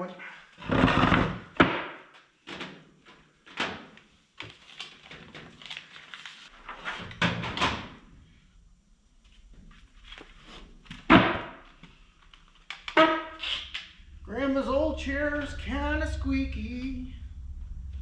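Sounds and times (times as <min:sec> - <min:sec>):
wooden chair creaking: 0:00.6 - 0:01.6
paper rustling: 0:04.0 - 0:07.2, 0:09.2 - 0:11.0.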